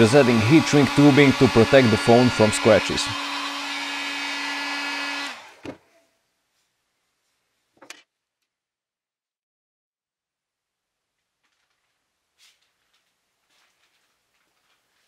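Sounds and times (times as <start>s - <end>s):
fan winding down: 0.0s - 5.6s
heat gun whining: 0.0s - 5.8s.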